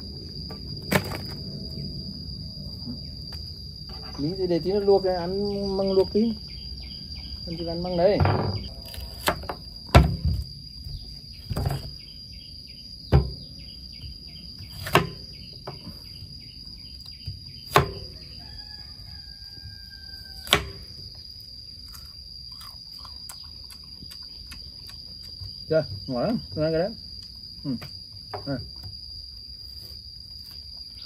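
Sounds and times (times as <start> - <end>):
high insect drone: 0.0 - 31.0.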